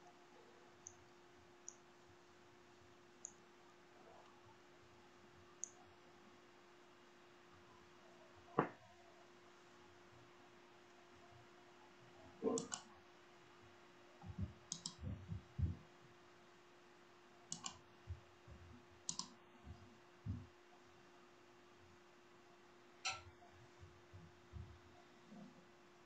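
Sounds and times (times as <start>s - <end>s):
steady hum: 0.0s - 26.0s
soft low thumps: 14.2s - 15.8s, 19.6s - 20.5s
sharp double clicks: 14.7s - 15.0s, 19.1s - 19.3s.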